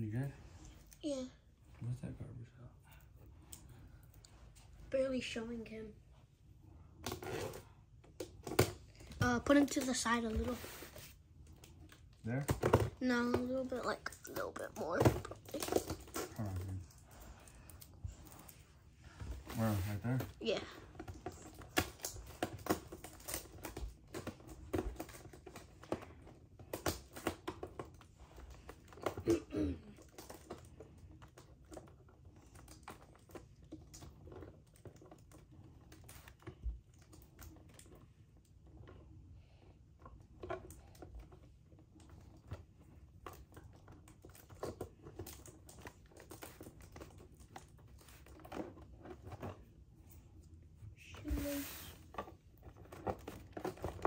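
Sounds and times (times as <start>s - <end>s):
packaging clicks and crinkles: 19.6s - 29.4s, 43.3s - 49.6s.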